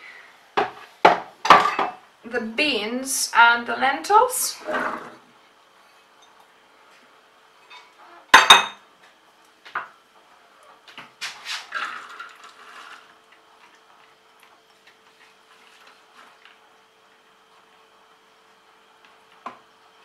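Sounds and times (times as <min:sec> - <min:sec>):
dishes clattering: 0:01.5 - 0:02.0, 0:07.6 - 0:08.8.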